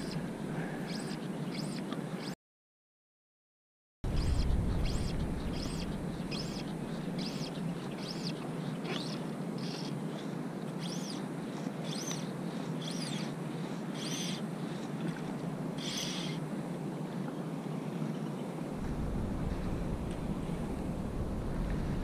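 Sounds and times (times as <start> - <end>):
bird calling: 0.0 - 2.4, 4.1 - 14.8, 15.8 - 16.4
wind rumble: 4.0 - 7.9, 18.7 - 22.0.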